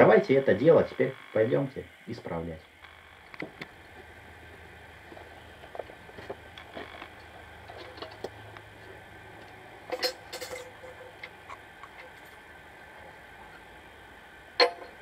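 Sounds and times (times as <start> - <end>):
faint low hum: 0.0 - 15.0
metal cover and chain clattering: 9.9 - 11.1
metal tools clinking: 9.9 - 11.2.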